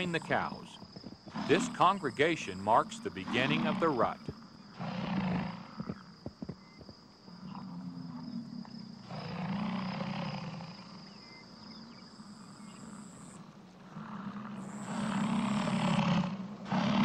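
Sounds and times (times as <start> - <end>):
bison bellowing: 0.0 - 0.7, 1.3 - 5.8
insects trilling: 0.0 - 17.0.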